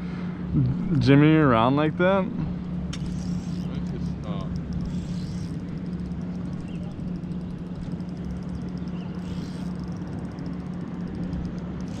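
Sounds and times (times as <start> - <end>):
boat motor humming: 0.0 - 12.0
fishing reel ticking: 2.9 - 12.0.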